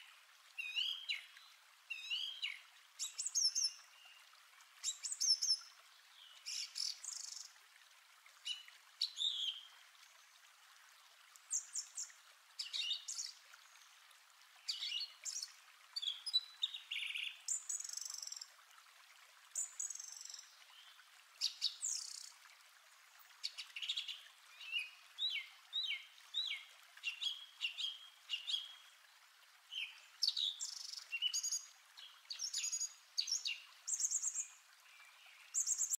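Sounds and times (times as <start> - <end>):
small birds chirping: 11.5 - 14.0, 14.6 - 18.5, 19.6 - 22.4, 23.4 - 28.8, 29.7 - 36.0.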